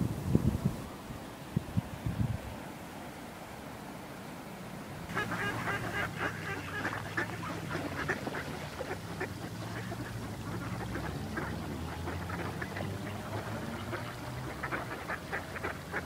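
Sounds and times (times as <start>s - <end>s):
ducks quacking: 5.1s - 16.0s.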